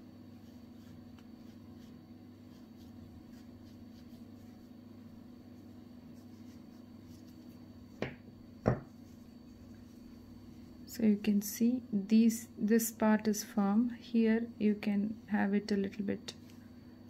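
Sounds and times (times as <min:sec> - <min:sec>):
low steady hum: 0:00.0 - 0:17.0
scratching and rustling of stuffing: 0:05.6 - 0:07.8.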